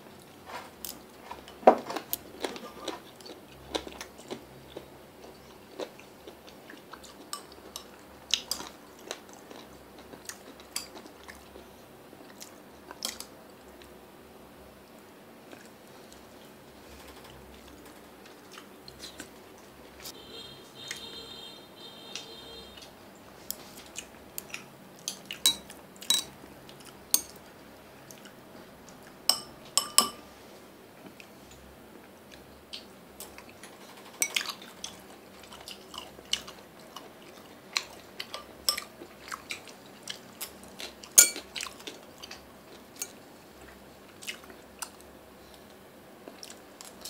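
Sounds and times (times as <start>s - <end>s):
chewing: 0.2s - 13.9s, 15.5s - 20.1s, 23.5s - 29.2s, 32.3s - 47.0s
chopsticks clicking on ceramic bowls: 29.3s - 30.2s.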